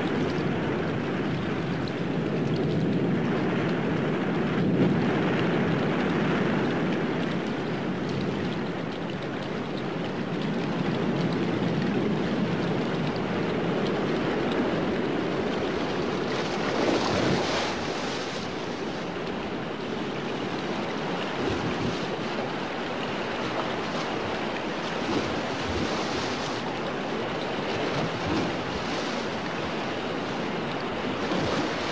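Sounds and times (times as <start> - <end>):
rushing wash of noise: 20.6 - 31.9.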